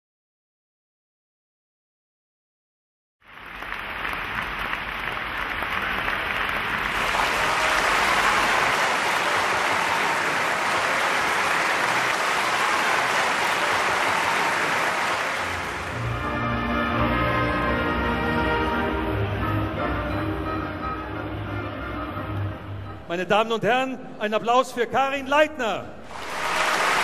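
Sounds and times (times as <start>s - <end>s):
audience applauding: 3.2s - 16.9s, 26.0s - 27.0s.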